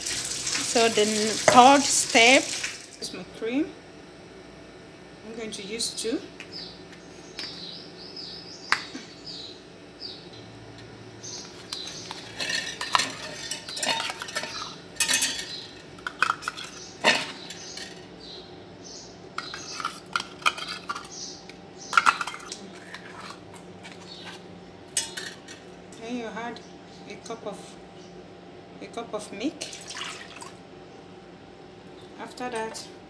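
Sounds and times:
metal cans clinking on steel bowl: 11.7s - 18.0s, 19.4s - 21.2s, 21.9s - 23.4s, 25.0s - 25.6s.

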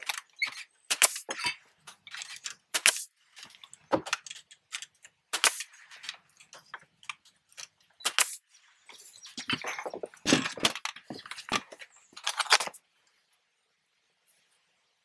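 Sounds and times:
pneumatic stapler shots into wood: 0.9s - 1.4s, 2.7s - 3.1s, 5.3s - 5.7s, 8.0s - 8.4s.

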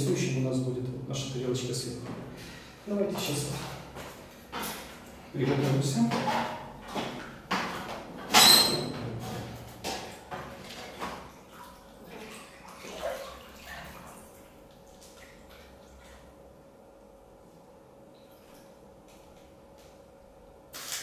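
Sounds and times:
water splashing in bathtub: 3.1s - 16.6s.

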